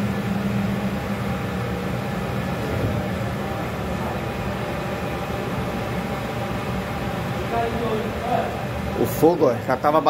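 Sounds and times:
low hum: 0:00.0 - 0:08.2
ventilation machinery drone: 0:00.0 - 0:10.0.

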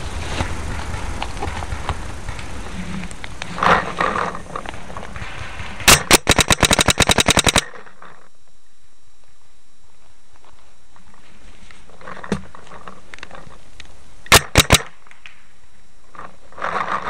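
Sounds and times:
paintball marker firing pops: 0:04.6 - 0:07.7, 0:14.3 - 0:15.4.

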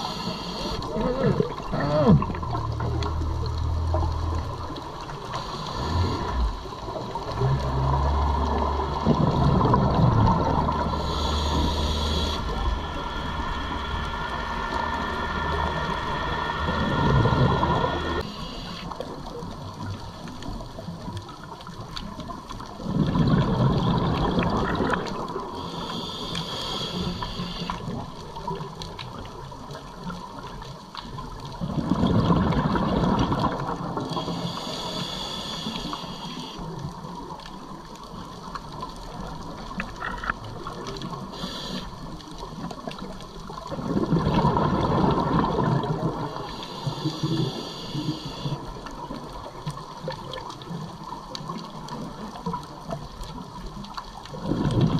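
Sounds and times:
regulator inhalation hiss: 0:00.0 - 0:00.8, 0:11.0 - 0:18.9, 0:25.6 - 0:27.8, 0:34.1 - 0:36.6, 0:41.3 - 0:42.0, 0:46.4 - 0:48.6
exhaled bubbles underwater: 0:00.0 - 0:36.0, 0:36.6 - 0:54.9.

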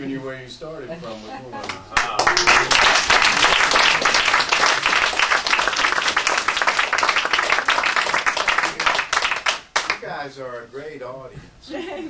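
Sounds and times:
audience applauding: 0:02.0 - 0:10.1.

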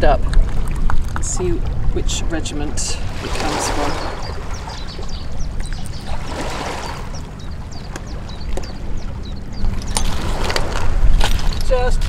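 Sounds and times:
water lapping on stony shore: 0:00.0 - 0:12.0
wind rumbling on microphone: 0:00.0 - 0:12.0
bird chirping: 0:02.6 - 0:12.0.

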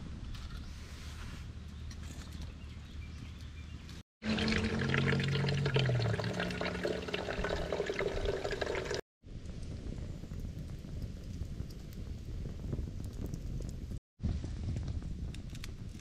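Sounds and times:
water pouring into canteen: 0:04.2 - 0:09.0.

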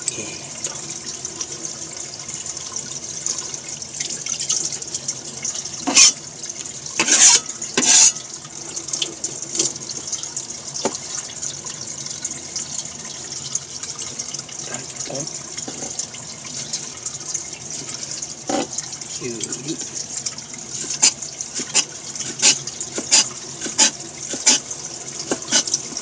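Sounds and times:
tap running into a sink: 0:03.4 - 0:11.4, 0:14.1 - 0:26.0.

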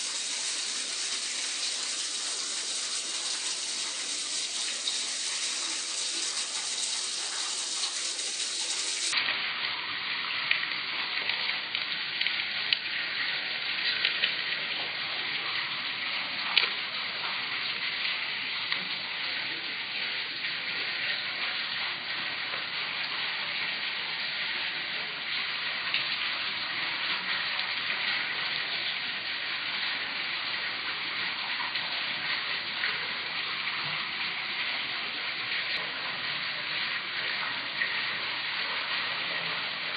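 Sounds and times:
water swirling down a drain: 0:00.0 - 0:09.2.

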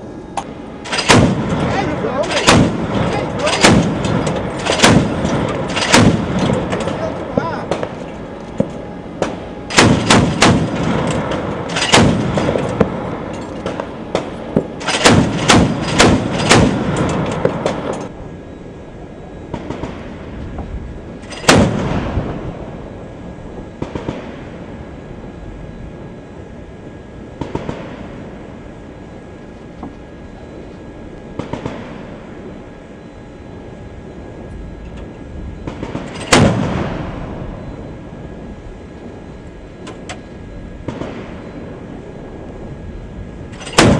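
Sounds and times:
ship noise: 0:00.0 - 0:43.9
wind: 0:00.0 - 0:43.9
burst of gunfire: 0:00.8 - 0:08.0, 0:08.6 - 0:13.0, 0:13.6 - 0:17.9, 0:19.5 - 0:20.2, 0:21.3 - 0:22.4, 0:31.4 - 0:32.1, 0:35.6 - 0:37.4, 0:40.8 - 0:41.5, 0:43.6 - 0:43.9
machine gun firing: 0:00.8 - 0:08.0, 0:09.2 - 0:13.0, 0:13.6 - 0:18.0, 0:21.3 - 0:22.2, 0:23.8 - 0:24.3, 0:35.6 - 0:37.1, 0:43.6 - 0:43.9.

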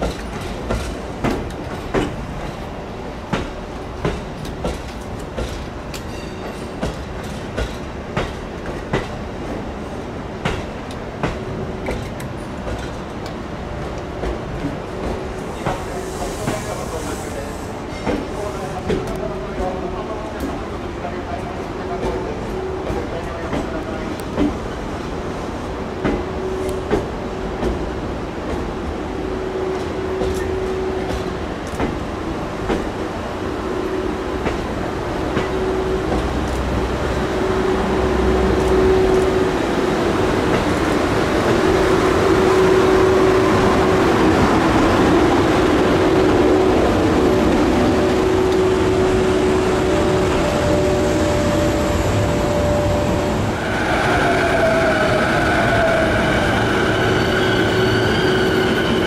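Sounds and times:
train passing with steady hum: 0:00.0 - 0:59.0
high steady squealing tones: 0:46.2 - 0:59.0.

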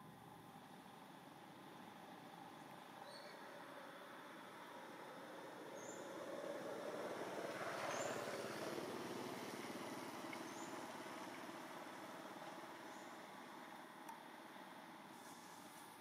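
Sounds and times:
motor vehicle passing: 0:03.7 - 0:13.2.

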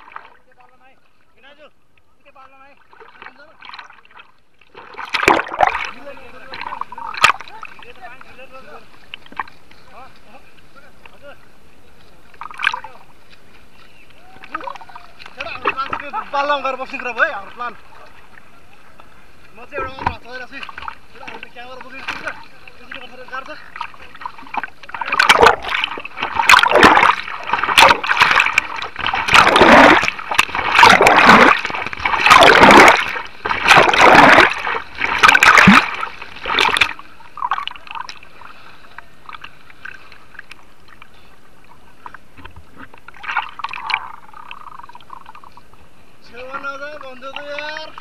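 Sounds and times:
steady rush of water: 0:00.0 - 0:01.5, 0:02.5 - 0:48.0
whitewater splashing around raft: 0:20.4 - 0:39.0.

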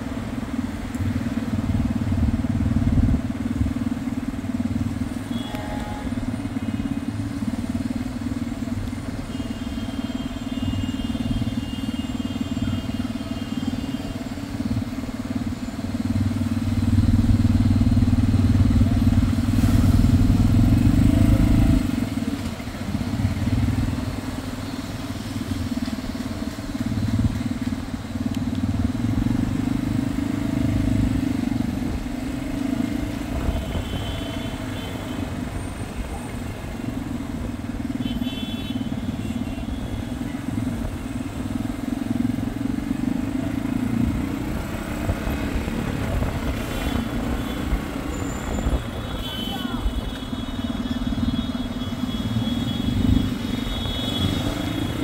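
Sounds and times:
motor vehicle rumble: 0:14.1 - 0:38.0, 0:38.8 - 0:55.0.

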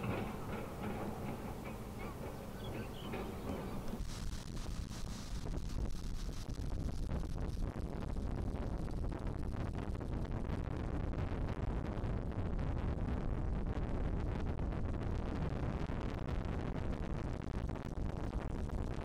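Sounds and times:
wind buffeting microphone: 0:00.0 - 0:10.2.

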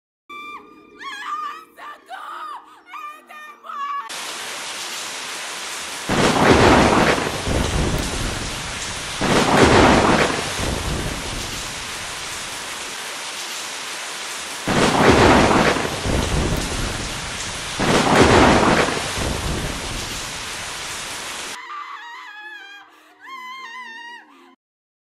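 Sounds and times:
heavy rain: 0:04.1 - 0:21.6
thunder rolling: 0:04.1 - 0:21.6.

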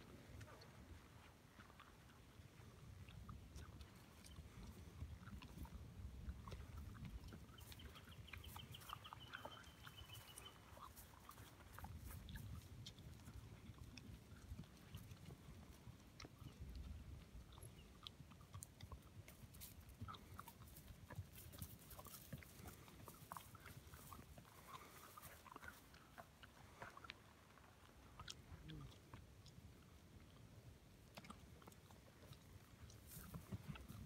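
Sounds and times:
faint ticks and crackles: 0:00.0 - 0:34.0.

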